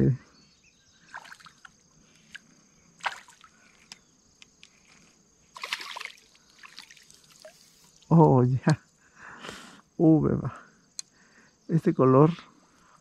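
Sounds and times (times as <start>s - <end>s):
fish splashing in water: 1.1s - 1.7s, 3.0s - 3.5s, 5.6s - 7.6s.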